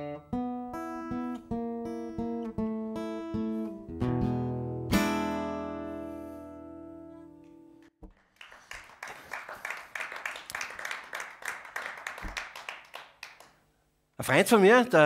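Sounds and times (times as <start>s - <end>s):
acoustic guitar chord ringing: 0.0s - 7.7s
audience applause: 8.1s - 13.6s.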